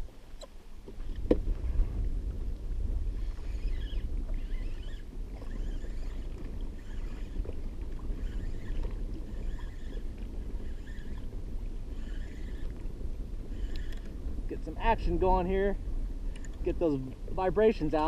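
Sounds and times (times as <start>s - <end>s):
water lapping against hull: 0.0s - 18.0s
wind rumble on microphone: 0.0s - 18.0s.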